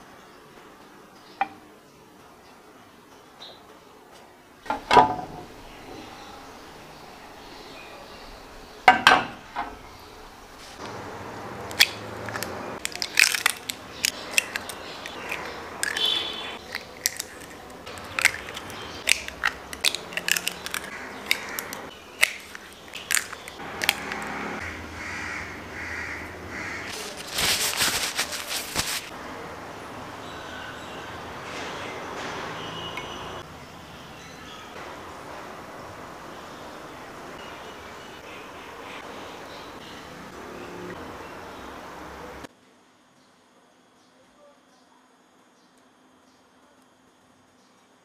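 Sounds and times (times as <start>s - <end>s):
paper towel rustling: 10.5s - 10.9s, 26.9s - 29.2s
eggshells cracking: 11.7s - 24.3s.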